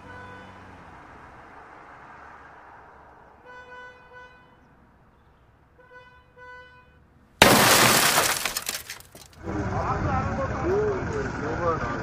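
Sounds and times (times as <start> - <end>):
car horn blasts: 3.4 - 4.7, 5.8 - 7.0
loud crash: 7.4 - 9.3.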